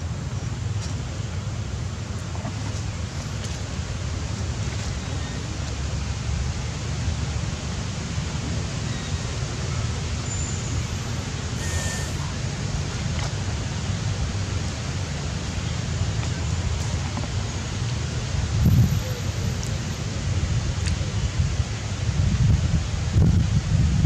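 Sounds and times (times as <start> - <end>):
wind rumble on microphone: 12.4 - 24.0.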